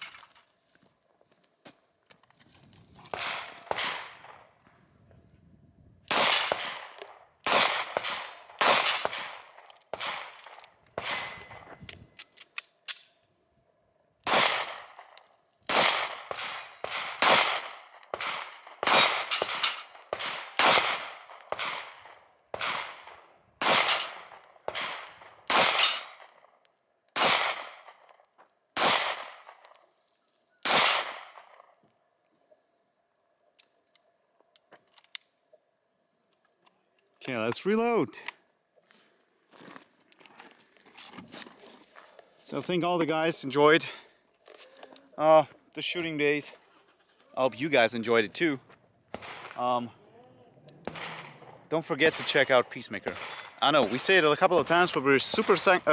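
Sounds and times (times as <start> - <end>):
pistol shots echoing: 3.1 - 4.5, 6.1 - 11.6, 14.2 - 26.4, 27.2 - 28.0, 28.8 - 29.6, 30.6 - 31.6, 49.1 - 49.6, 50.8 - 55.9.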